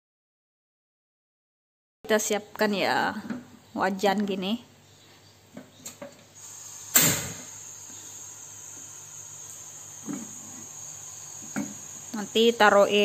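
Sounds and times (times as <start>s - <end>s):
gas burner hissing: 6.4s - 13.0s
stove igniter clicks: 6.9s - 7.4s.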